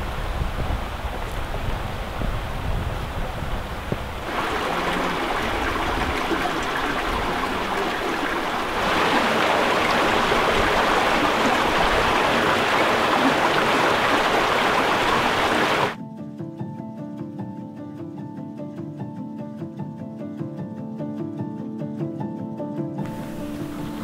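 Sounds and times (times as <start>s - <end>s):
creek rushing over rocks: 0.0s - 16.0s, 23.0s - 24.0s
wind rumbling on microphone: 0.0s - 16.0s.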